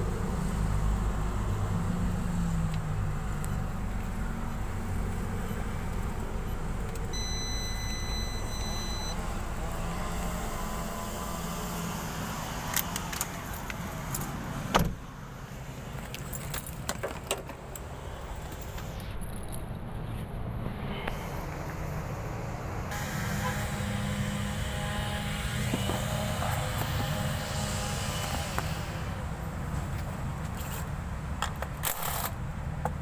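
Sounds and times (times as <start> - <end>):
electronic beep: 6.4 - 9.2
clicks and jingling: 16.0 - 19.6.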